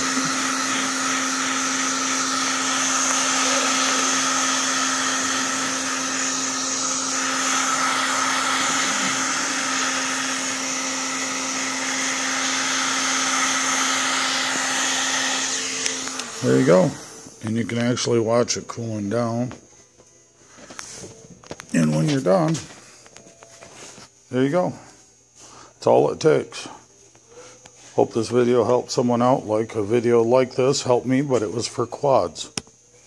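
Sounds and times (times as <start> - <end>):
heat gun fan blowing air: 0.0 - 19.4
heat gun hum: 0.0 - 19.4.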